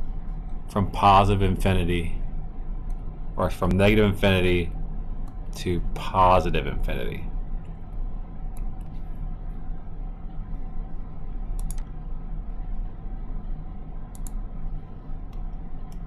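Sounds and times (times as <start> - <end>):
low electrical hum: 0.0 - 16.0
computer mouse clicks: 11.5 - 12.0, 14.1 - 14.4, 15.3 - 16.0.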